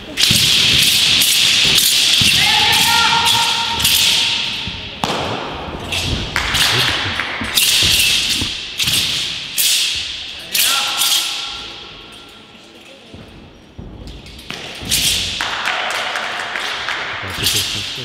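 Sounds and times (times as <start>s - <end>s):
feet thudding on a mat: 6.0s - 8.8s.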